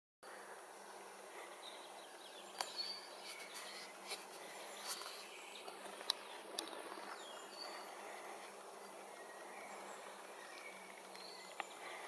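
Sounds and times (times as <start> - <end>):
bird chirps: 1.6 - 12.0.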